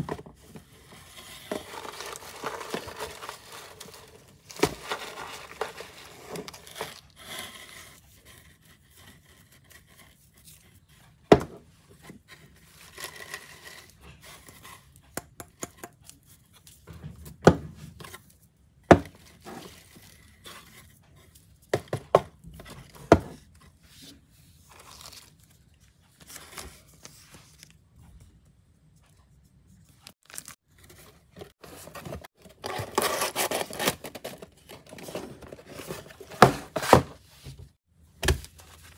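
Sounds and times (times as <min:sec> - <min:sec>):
paper filler rustling: 0:00.0 - 0:11.5, 0:30.0 - 0:38.9.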